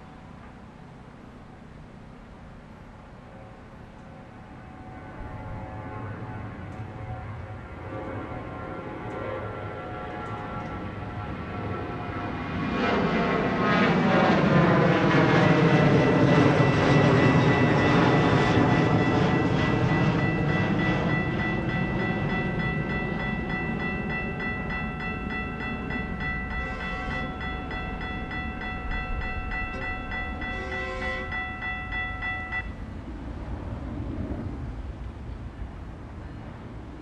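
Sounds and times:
railroad crossing bells ringing: 2.6s - 12.9s, 14.6s - 33.1s.

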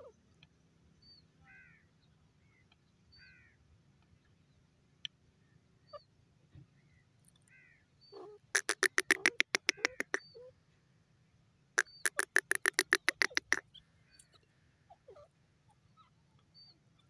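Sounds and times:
faint small bird chirps: 0.0s - 10.6s, 11.8s - 17.0s
francolin harsh repeated calls: 7.5s - 10.4s, 11.8s - 13.8s.

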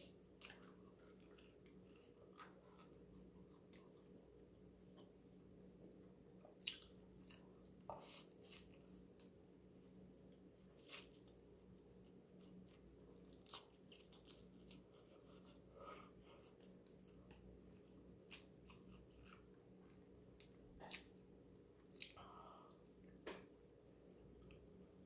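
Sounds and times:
person chewing and slurping noodles: 0.0s - 4.2s, 6.6s - 19.6s
faint room hiss: 0.0s - 25.0s.

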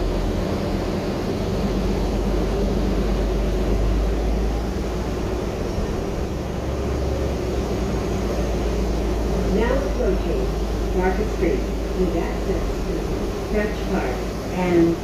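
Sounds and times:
bus cabin rumble: 0.0s - 15.0s
road hiss: 0.0s - 15.0s.

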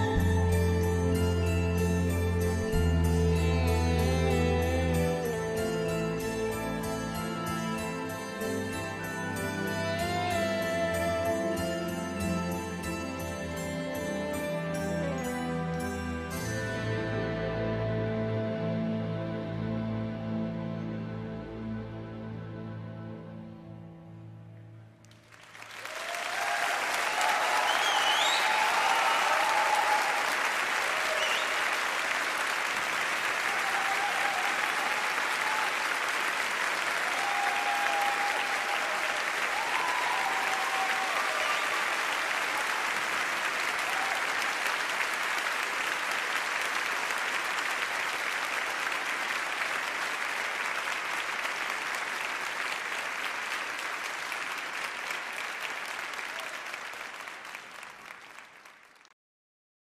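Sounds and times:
audience applauding: 25.0s - 59.2s
whistle: 27.6s - 29.2s, 31.1s - 31.7s.

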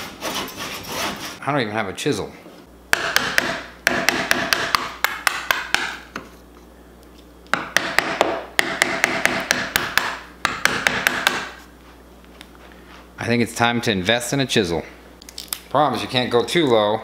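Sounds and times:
scraping rasp on wood: 0.0s - 1.4s.

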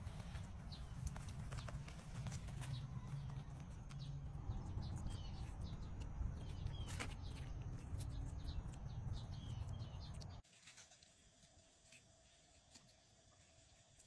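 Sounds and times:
small birds chirping: 0.0s - 10.4s
steady low rumble: 0.0s - 10.4s.

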